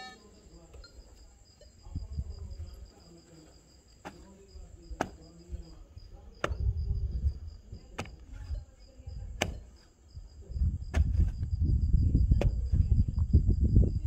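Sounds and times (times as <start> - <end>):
loosened soil rumbling: 1.8 - 14.0
pickaxe striking earth: 4.0 - 4.3, 5.0 - 5.2, 6.4 - 6.6, 8.0 - 8.4, 9.4 - 9.8, 10.9 - 11.4.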